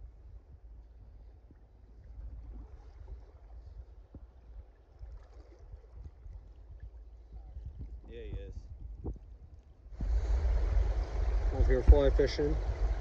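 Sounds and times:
wind rumble on microphone: 0.0 - 13.0
faint running water: 0.8 - 13.0
microphone handling noise: 10.0 - 13.0.

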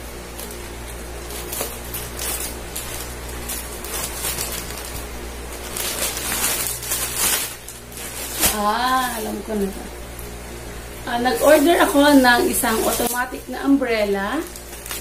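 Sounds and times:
plastic bag crinkling: 0.2 - 10.3, 11.0 - 15.0
scissors cutting plastic: 0.3 - 9.2, 11.4 - 13.4, 14.4 - 15.0.

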